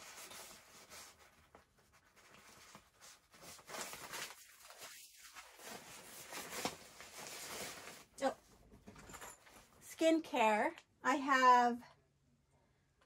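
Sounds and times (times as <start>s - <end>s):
fabric bags rustling: 0.0s - 9.8s.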